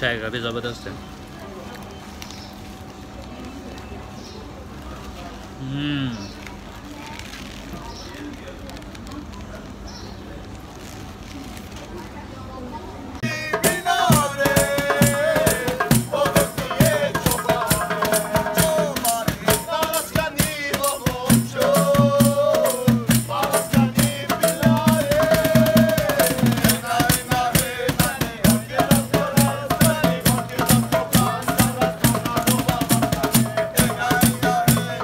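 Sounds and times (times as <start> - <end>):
congas and cajon rhythm: 13.2 - 35.0.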